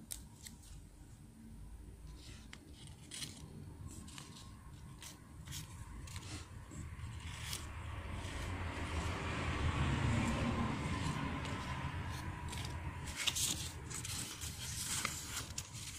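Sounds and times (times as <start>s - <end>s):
paper crinkling: 2.2s - 8.4s, 11.0s - 15.9s.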